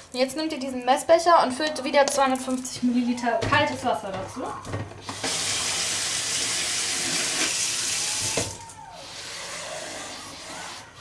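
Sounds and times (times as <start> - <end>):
tap water running into jug: 5.0 - 8.7.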